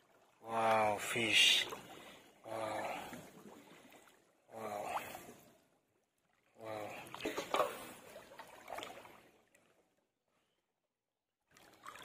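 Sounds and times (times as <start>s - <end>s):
water splashing: 0.0s - 5.6s, 6.2s - 9.8s, 11.5s - 12.0s.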